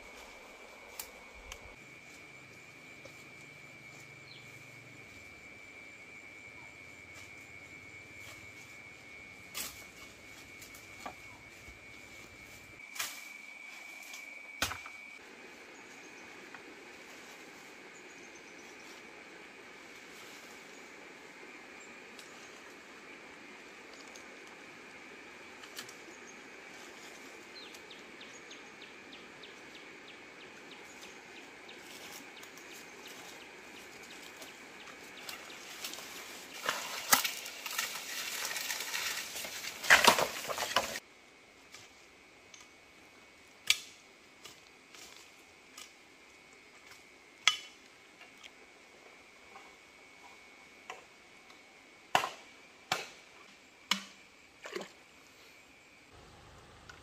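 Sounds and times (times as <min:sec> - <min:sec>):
brush rustling: 0:31.0 - 0:41.0
stones clacking underfoot: 0:36.6 - 0:41.0.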